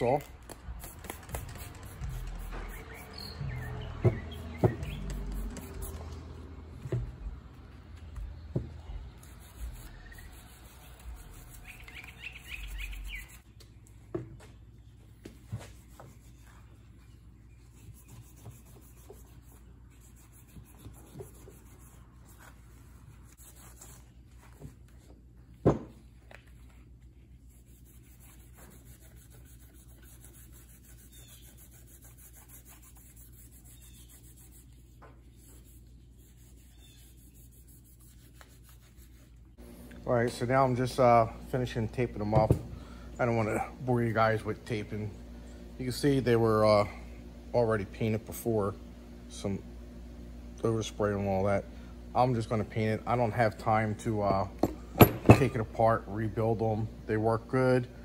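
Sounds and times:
gloved hands rubbing metal: 0.0s - 6.4s, 9.2s - 13.5s, 27.2s - 39.5s
bird chirps: 2.4s - 5.3s, 11.6s - 13.4s.

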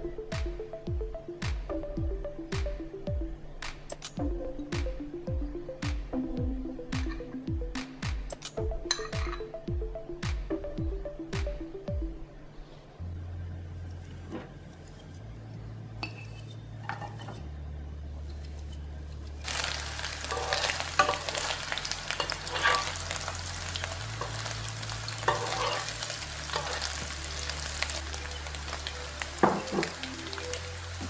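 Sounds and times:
sausage sizzling in oil: 19.4s - 31.0s
utensil scraping pan: 22.2s - 23.0s, 25.3s - 26.9s.

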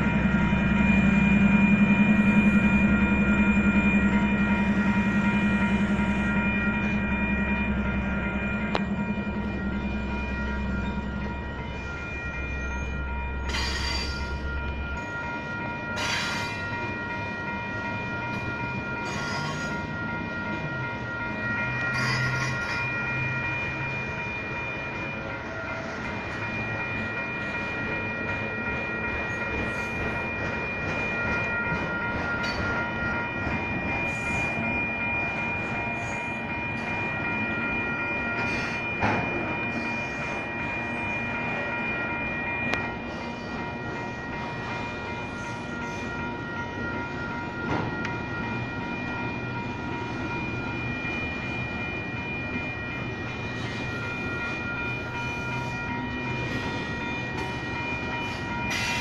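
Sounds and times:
crossing bells ringing: 0.0s - 59.0s
train wheels clattering on rails: 12.6s - 41.8s, 42.6s - 59.0s.

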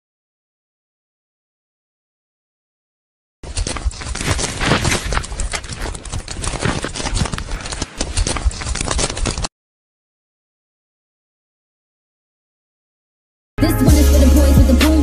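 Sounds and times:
book pages flipped rapidly: 3.4s - 9.5s.

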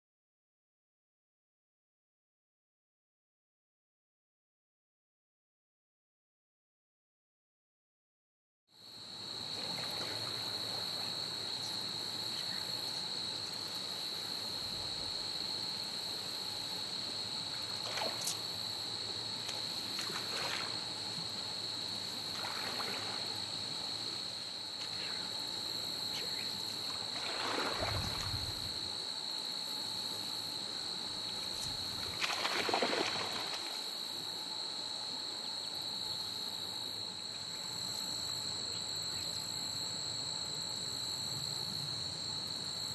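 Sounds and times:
insects droning: 8.7s - 42.9s
water splashes: 17.7s - 18.4s, 19.9s - 21.0s, 22.3s - 23.5s, 26.9s - 28.8s, 31.6s - 33.8s
fish thrashing at water surface: 32.0s - 33.7s.

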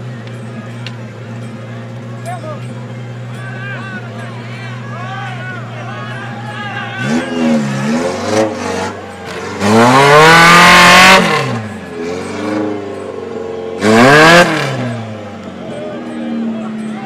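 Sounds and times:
off-road engine revving: 5.6s - 17.0s.

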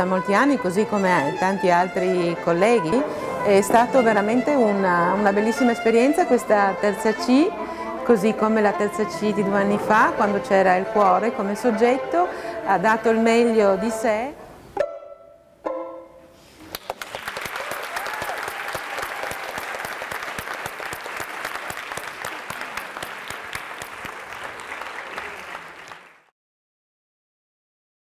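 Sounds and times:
audience applauding: 16.7s - 26.3s.

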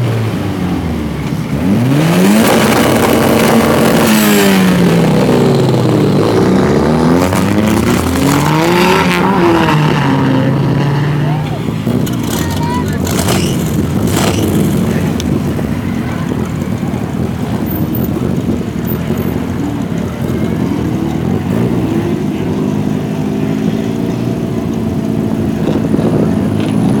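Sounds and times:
race car engines idling: 0.0s - 27.0s.

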